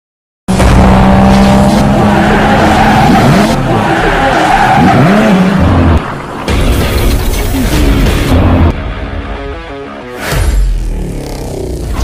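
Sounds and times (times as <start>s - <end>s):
race car engine: 0.5s - 6.5s.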